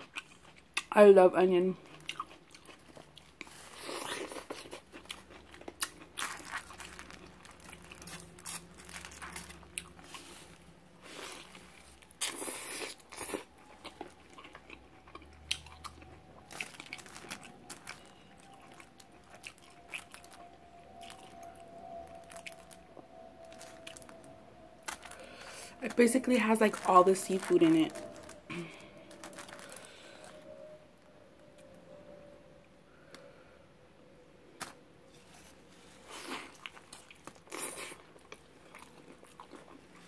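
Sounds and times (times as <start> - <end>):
chewing: 0.0 - 0.9, 1.8 - 22.8, 35.9 - 40.0.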